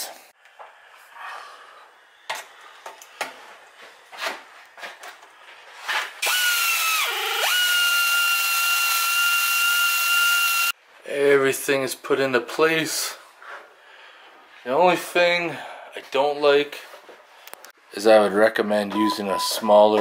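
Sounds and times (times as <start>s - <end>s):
power tool whining: 6.2s - 10.7s.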